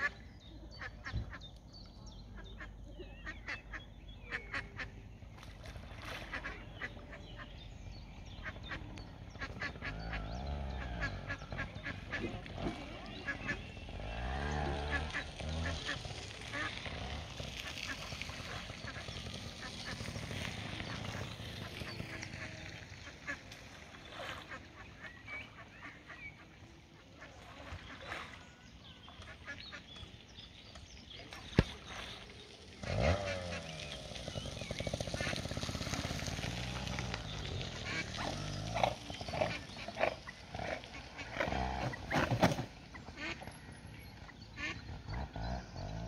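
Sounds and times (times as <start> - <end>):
water splashing: 4.6 - 7.4, 9.2 - 45.2
waterfowl honking and quacking: 37.7 - 42.2, 42.9 - 43.6, 44.5 - 45.2.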